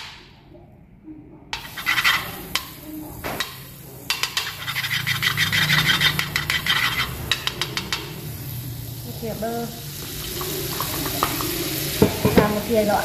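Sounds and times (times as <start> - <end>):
metal spoon scraping a pan: 1.6 - 8.9, 10.0 - 12.8
butter sizzling in a wok: 1.6 - 13.0.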